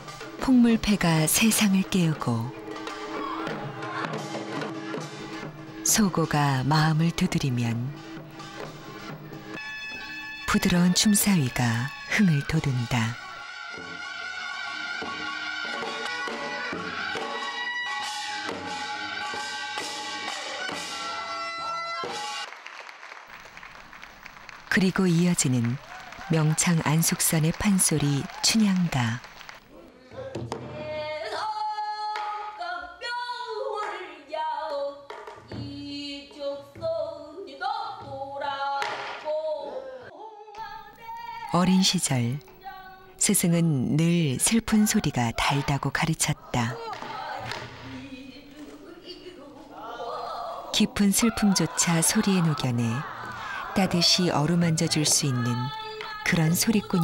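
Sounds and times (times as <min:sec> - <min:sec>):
drums struck in steady beat: 0:02.6 - 0:06.1.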